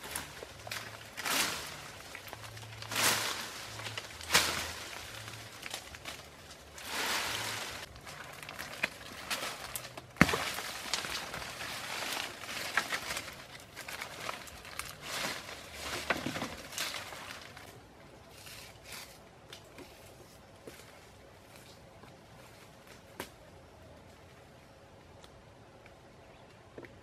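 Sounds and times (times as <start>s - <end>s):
vine snapping: 0.0s - 17.7s
footsteps on dry leaves: 0.0s - 23.2s
dry leaves rustling and crackling: 0.0s - 24.2s.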